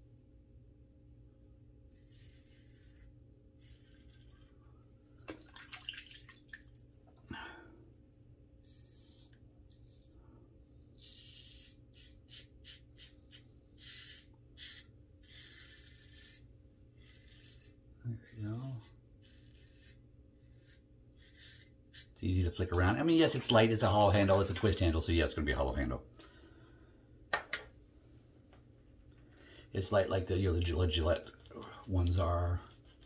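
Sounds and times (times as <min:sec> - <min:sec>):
razor scraping stubble: 0:01.9 - 0:04.6, 0:11.0 - 0:22.8.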